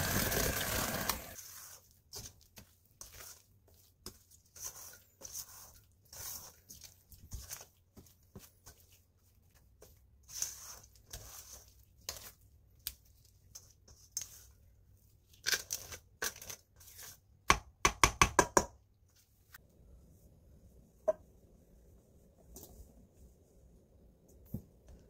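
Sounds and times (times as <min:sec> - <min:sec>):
spatula scraping batter in bowl: 0:00.6 - 0:17.4.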